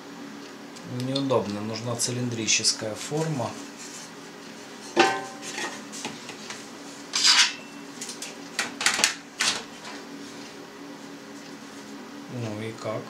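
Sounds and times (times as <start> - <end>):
metal tray knocking on steel: 5.0 - 5.4.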